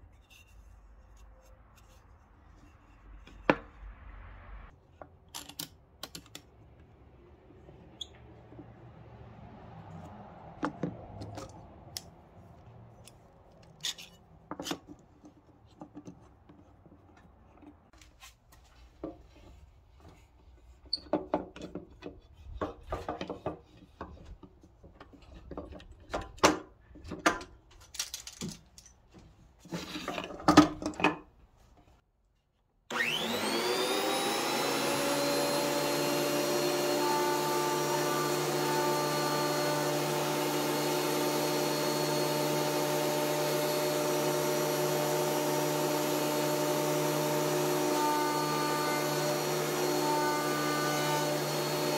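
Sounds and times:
thickness planer motor running: 32.9 - 51.9.

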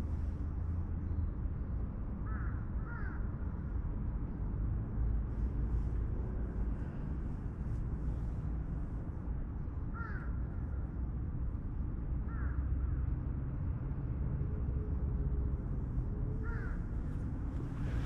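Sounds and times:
crow cawing: 2.3 - 3.2, 9.9 - 10.3, 12.3 - 12.6, 16.4 - 16.8
low rumble: 16.8 - 18.0.

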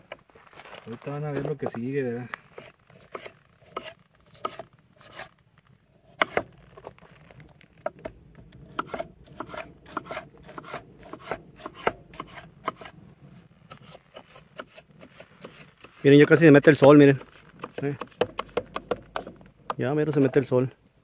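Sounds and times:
knife chopping on wooden board: 6.2 - 6.5, 8.7 - 12.9, 17.6 - 20.4.

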